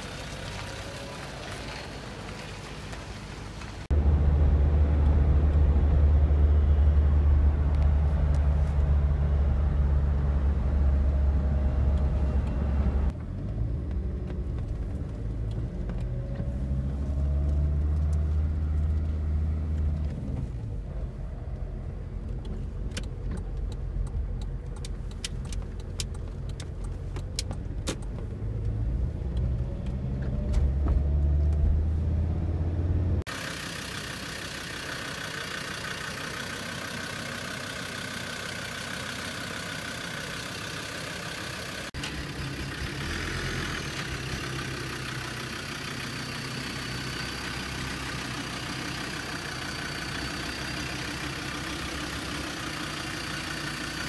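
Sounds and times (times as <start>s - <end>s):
diesel engine drone: 0.0s - 54.0s.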